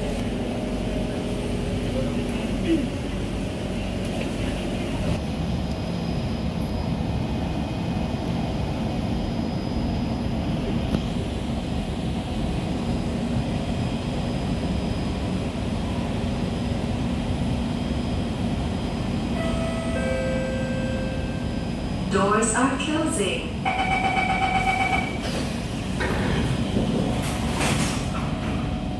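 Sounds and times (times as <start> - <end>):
train air-conditioning hum: 10.2 - 28.9.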